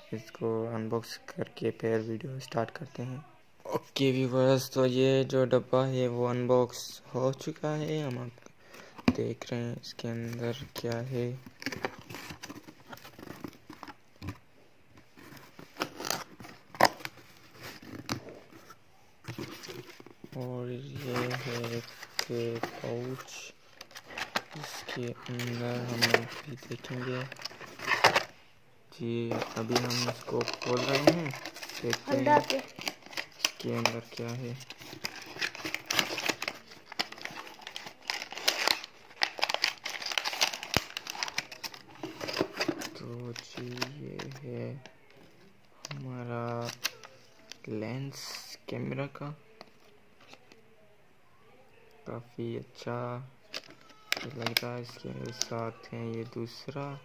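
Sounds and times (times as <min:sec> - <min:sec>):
cardboard rustling and crinkling: 0:10.0 - 0:28.4, 0:29.2 - 0:47.6.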